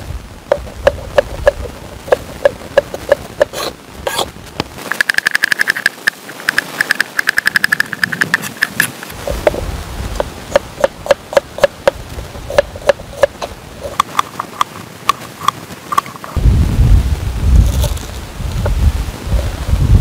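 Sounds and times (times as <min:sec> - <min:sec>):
low rumble: 0:16.4 - 0:20.0.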